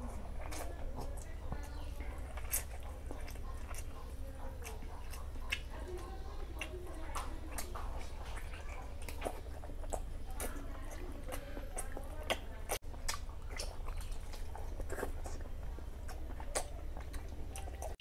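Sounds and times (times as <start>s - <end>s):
man chewing and lip-smacking: 0.0s - 18.0s.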